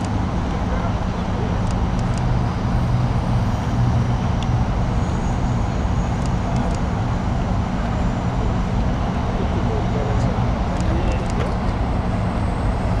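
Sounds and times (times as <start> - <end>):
city traffic rumble: 0.0 - 13.0.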